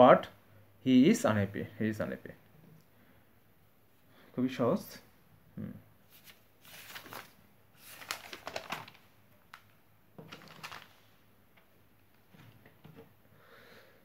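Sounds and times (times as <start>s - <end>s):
paper rustling and crinkling: 6.1s - 11.2s.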